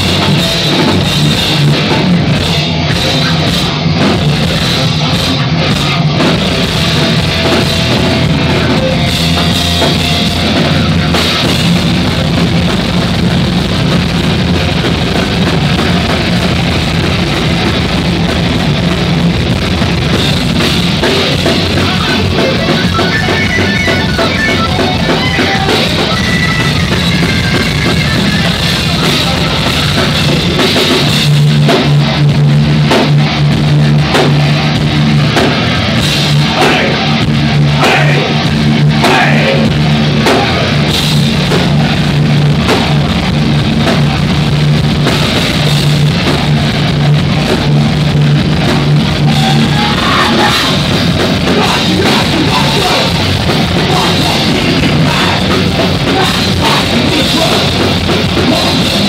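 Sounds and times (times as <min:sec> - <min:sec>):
bass guitar: 0:00.0 - 0:59.0
drum kit: 0:00.0 - 0:59.0
electric guitar: 0:00.0 - 0:59.0.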